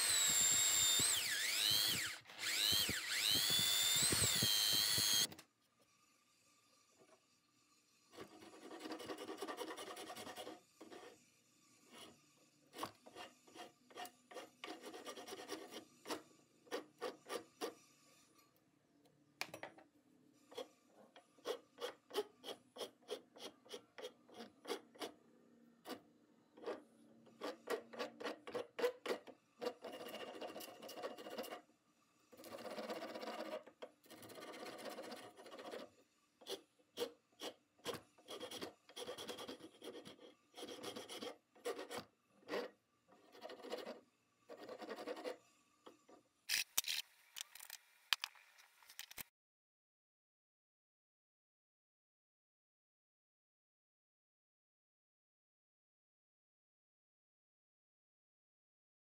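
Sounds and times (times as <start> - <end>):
wood rasp rasping wood: 11.9 - 17.9, 32.4 - 45.4.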